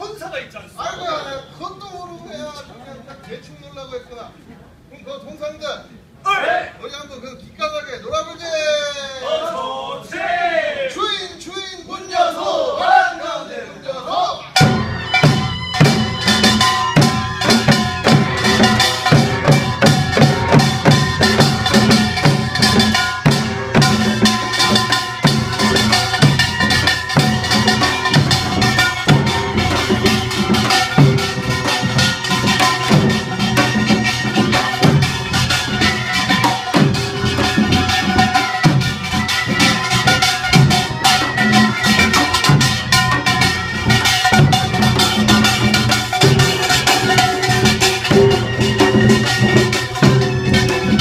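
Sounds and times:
barrel and hourglass drums: 14.5 - 51.0
small brass gong clanging: 14.6 - 51.0.

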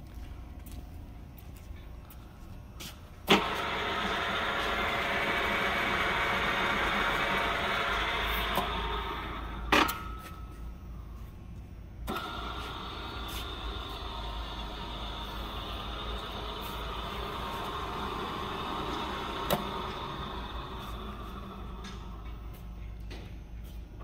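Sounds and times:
drill press motor whirring: 3.3 - 10.1, 12.0 - 22.8.

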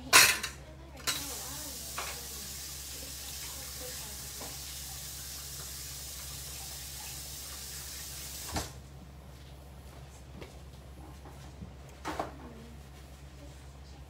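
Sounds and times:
tap water running: 1.0 - 8.8.

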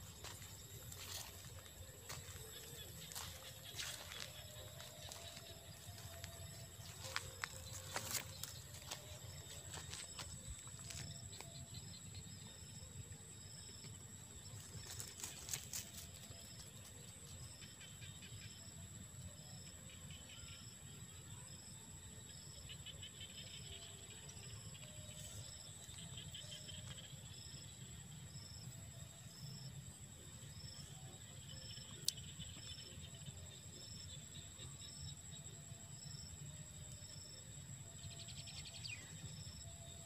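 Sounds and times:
insects buzzing: 0.0 - 18.8.

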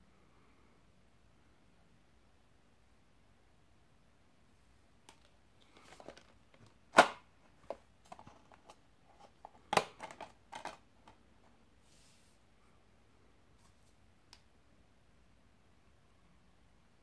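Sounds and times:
plastic disc case clicks: 5.1 - 8.8, 9.4 - 11.2.

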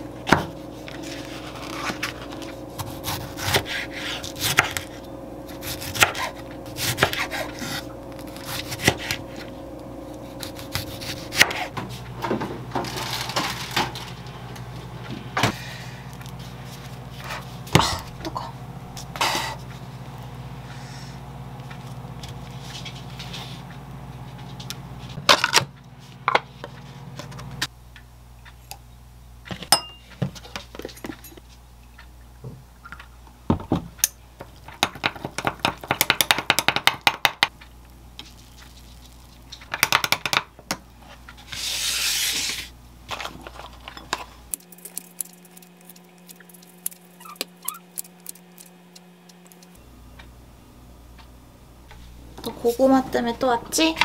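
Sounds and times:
kitchen scissors snipping: 44.5 - 49.8.

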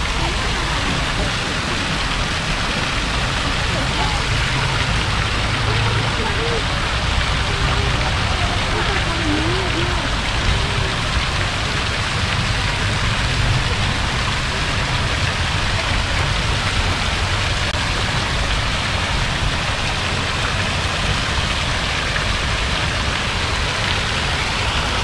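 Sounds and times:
low rumble: 0.0 - 25.0.

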